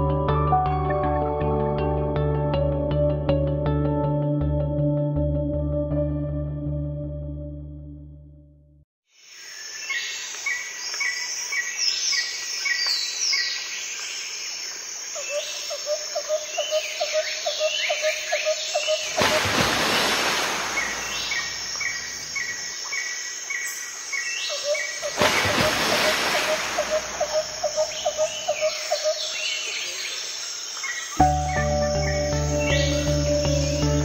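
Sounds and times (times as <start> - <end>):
high insect drone: 9.2 - 34.0
falling whistled bird calls: 18.7 - 23.7, 24.4 - 30.0.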